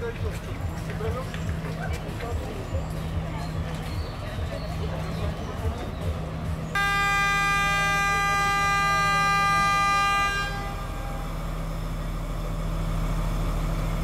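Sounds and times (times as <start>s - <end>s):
train engine humming: 0.0s - 14.0s
train horn: 6.8s - 11.6s.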